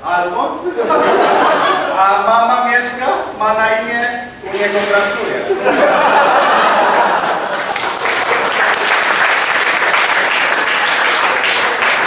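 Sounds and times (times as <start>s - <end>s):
audience applause: 5.8s - 12.0s.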